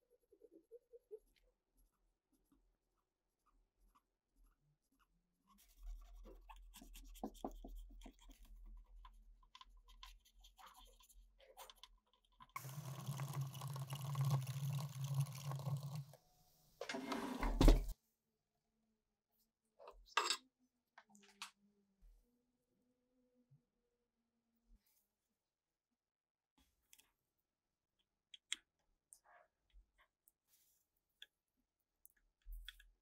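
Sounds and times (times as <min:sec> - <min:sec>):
cotton swab scrubbing circuit board: 0:01.1 - 0:14.0.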